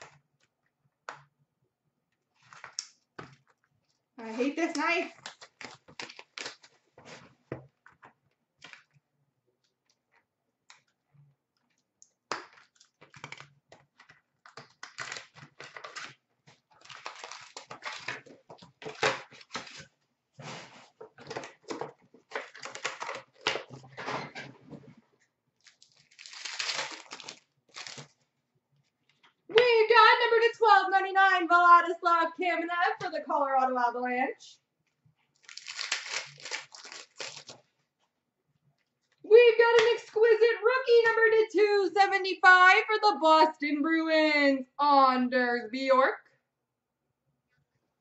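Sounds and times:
wrappers crinkling and tearing: 4.5 - 6.9, 14.5 - 19.9, 22.3 - 23.9, 25.6 - 28.3, 35.4 - 37.7
cards rustling and clicking: 12.3 - 19.9, 21.0 - 24.0, 25.6 - 28.2, 35.4 - 37.7.

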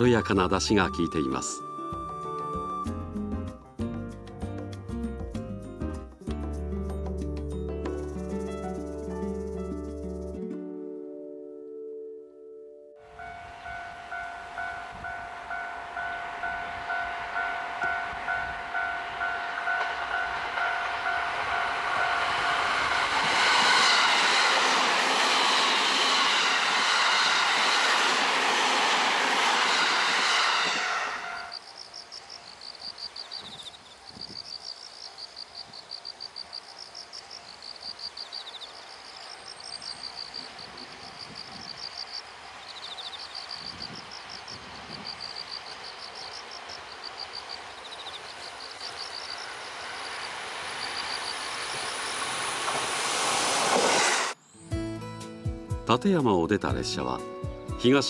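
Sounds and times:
electric train passing: 0.0 - 3.1, 13.0 - 33.4, 36.4 - 54.6
distant train approaching slowly: 0.0 - 3.9, 6.8 - 10.6, 13.0 - 58.0
insects chirping in trills: 13.1 - 54.6.

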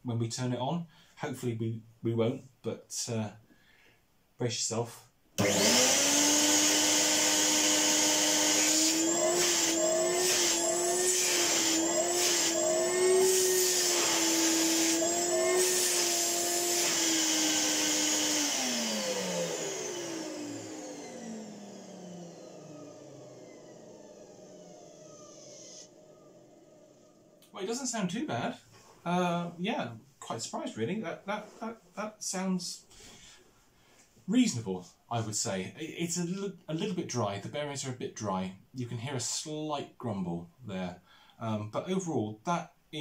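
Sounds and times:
vacuum cleaner motor whining: 5.4 - 27.5.

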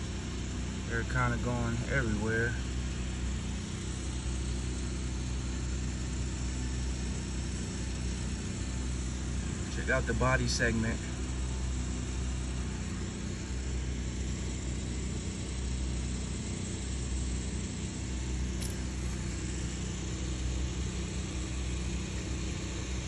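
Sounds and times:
machinery rumbling: 6.9 - 23.0
light click: 18.6 - 18.8.

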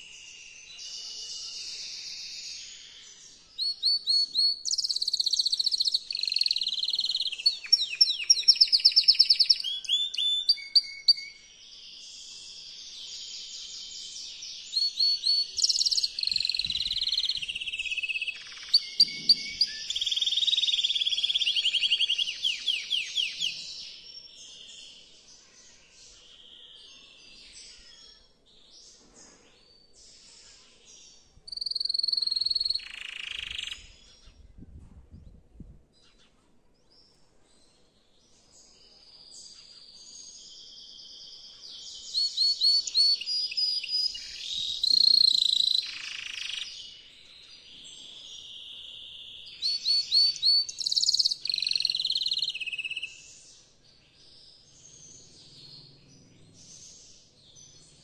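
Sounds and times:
canary singing trills: 3.6 - 11.4, 12.2 - 24.0, 31.5 - 34.4, 40.8 - 58.0.

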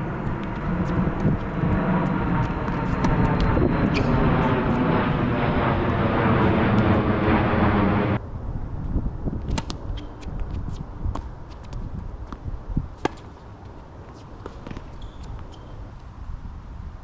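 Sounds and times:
loud steady engine drone: 0.0 - 8.8.

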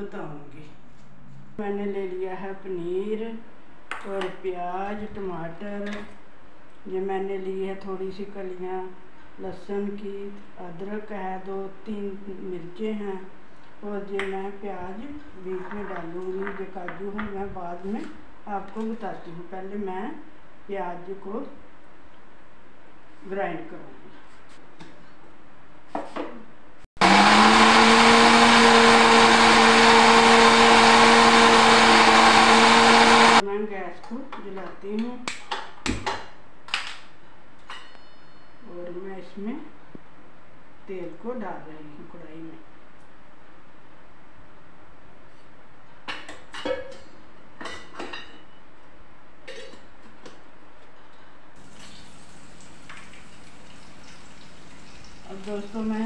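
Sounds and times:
mixer grinder motor: 27.0 - 33.4.

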